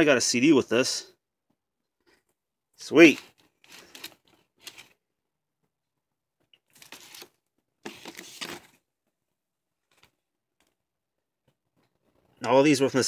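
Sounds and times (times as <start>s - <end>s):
plastic and card rustling: 2.8s - 5.0s, 6.4s - 8.9s, 9.8s - 10.8s.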